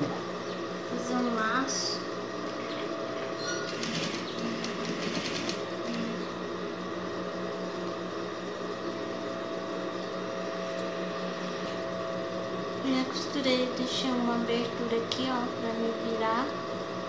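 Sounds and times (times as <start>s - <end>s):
sewing machine running: 3.4s - 6.2s.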